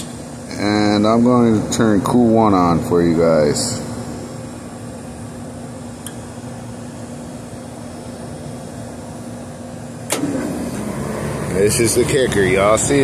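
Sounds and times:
air-conditioning unit hum: 0.0s - 13.0s
compressor starting: 10.0s - 13.0s.

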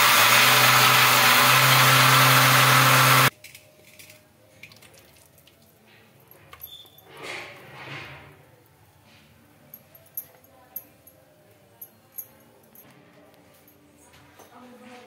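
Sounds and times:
mixer grinder running: 0.0s - 3.3s.

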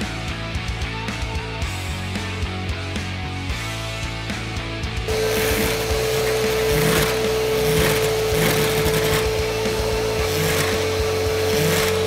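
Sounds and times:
vacuum cleaner whine: 5.1s - 12.0s.

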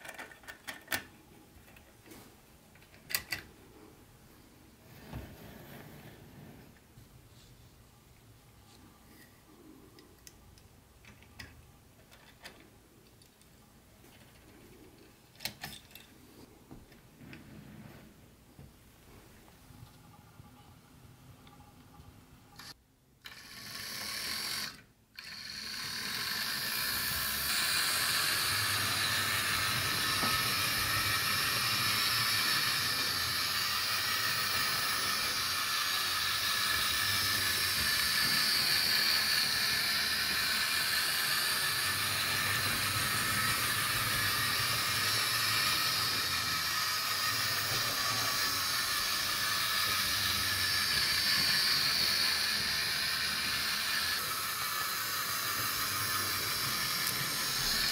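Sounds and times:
model train whirring on rails: 20.1s - 57.9s.

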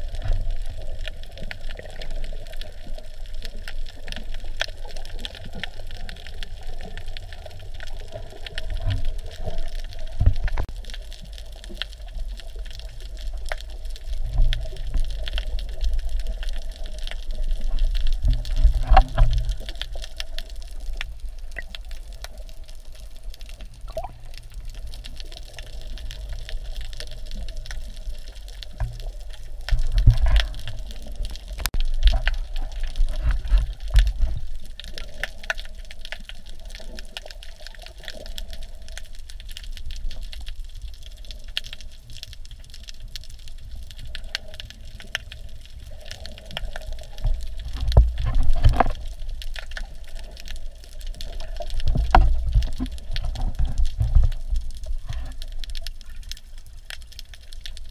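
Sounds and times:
muffled underwater water wash: 0.0s - 57.9s
underwater clicks: 4.0s - 10.9s, 12.8s - 22.5s, 23.6s - 37.3s, 44.0s - 57.8s.

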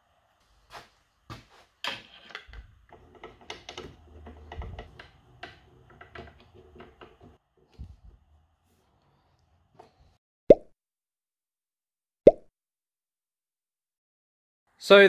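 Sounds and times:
light clicks and knocks: 1.8s - 8.0s.

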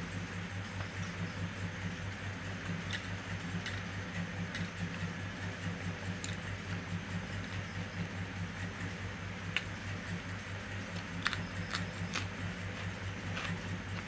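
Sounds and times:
steady low hum: 0.0s - 14.0s
chewing clicks: 6.2s - 6.8s, 10.8s - 14.0s.

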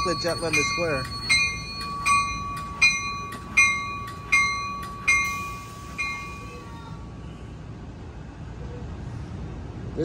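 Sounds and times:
train bell ringing: 0.0s - 7.0s.

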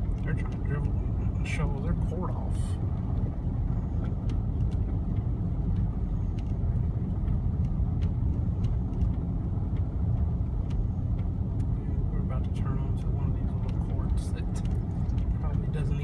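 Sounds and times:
car driving rumble inside cabin: 0.0s - 16.0s
faint ticks: 4.0s - 11.8s.

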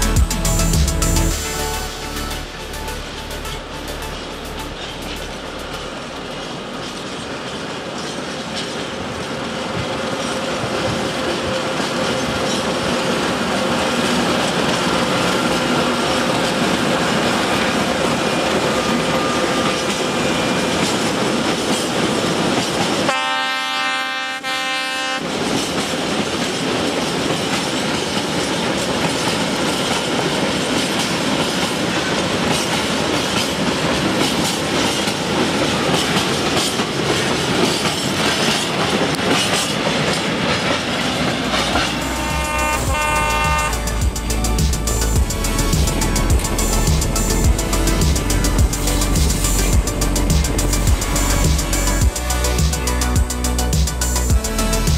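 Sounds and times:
diesel locomotive engine running: 0.0s - 23.8s, 24.4s - 54.9s
locomotive horn blast: 23.1s - 25.2s, 41.8s - 44.2s.

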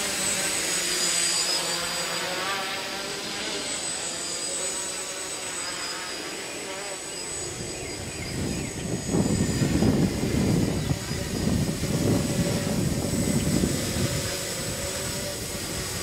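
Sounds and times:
drone motors whining: 0.0s - 16.0s
wind rumbling on microphone: 7.4s - 16.0s.

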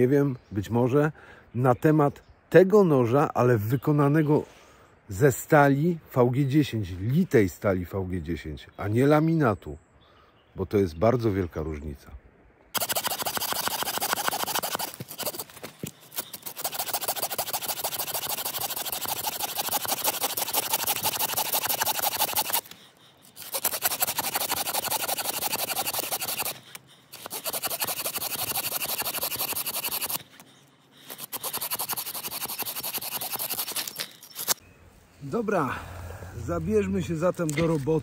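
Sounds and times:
rapid fine scraping: 12.8s - 34.6s.

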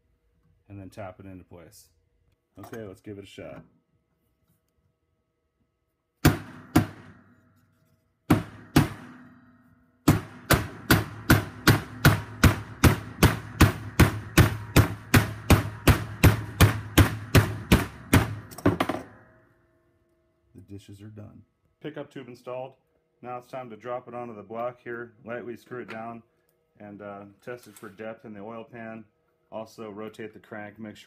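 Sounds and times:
hammer blows on plastic pipe: 6.2s - 7.4s, 8.3s - 9.4s, 10.0s - 19.2s.

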